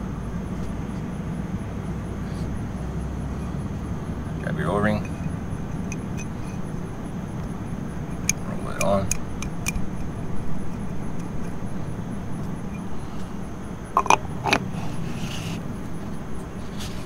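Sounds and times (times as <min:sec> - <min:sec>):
low background rumble: 0:00.0 - 0:17.0
metal hub cap clicks and taps: 0:05.0 - 0:06.6, 0:08.1 - 0:10.1, 0:14.0 - 0:14.6.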